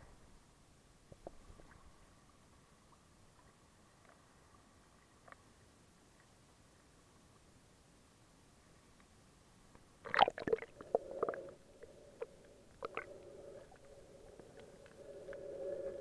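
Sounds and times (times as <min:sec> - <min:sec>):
splashing water: 0:10.0 - 0:11.5.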